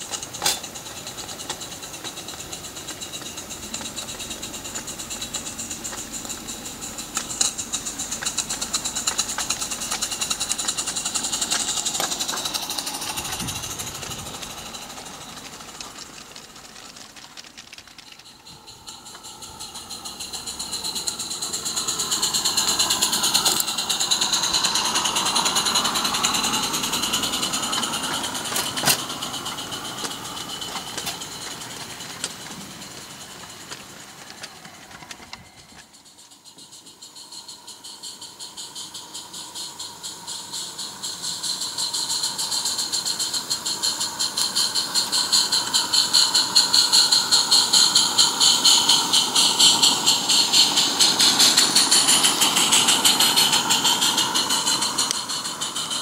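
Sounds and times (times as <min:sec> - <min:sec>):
steam locomotive exhaust beats: 0:00.0 - 0:56.0
wheels running on rails: 0:00.0 - 0:56.0.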